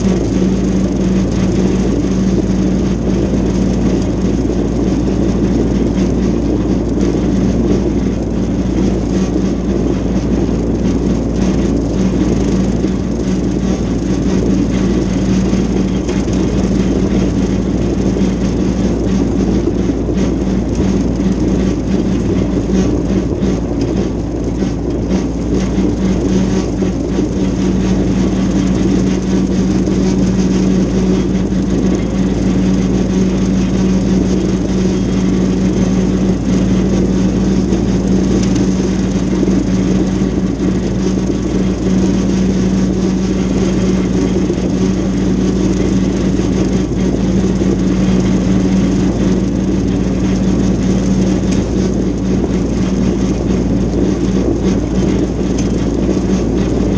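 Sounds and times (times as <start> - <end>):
rotary cutter cutting grass: 0.0 - 56.9
tractor engine running: 0.0 - 56.9.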